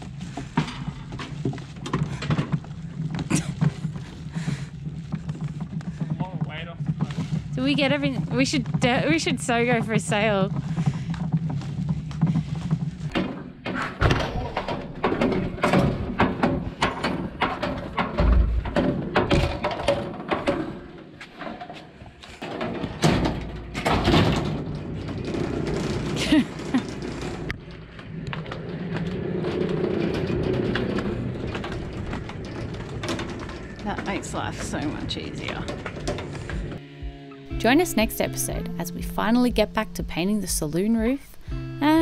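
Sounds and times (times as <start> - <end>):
hand trolley rattling over bricks: 0.0 - 13.7, 14.5 - 36.8
thuds: 0.3 - 21.8.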